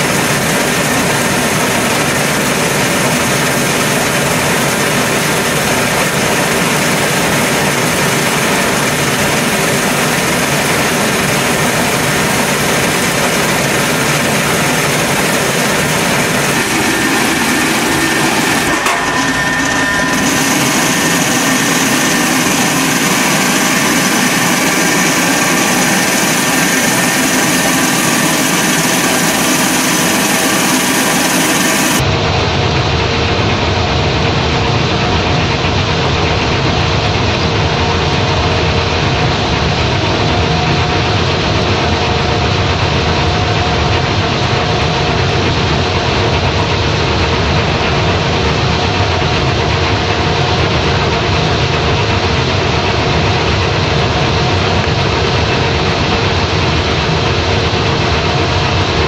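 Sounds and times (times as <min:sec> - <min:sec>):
rice mill running: 0:00.0 - 0:32.1.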